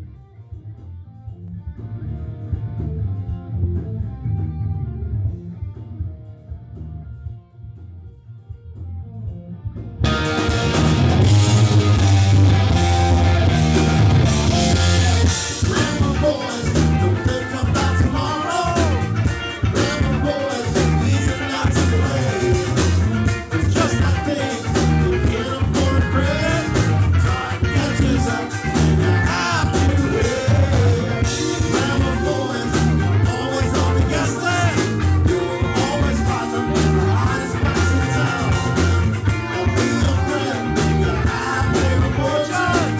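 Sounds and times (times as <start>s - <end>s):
bass guitar: 0.0s - 42.9s
drums: 0.0s - 42.9s
electric guitar: 0.0s - 42.9s
person singing: 11.5s - 42.9s.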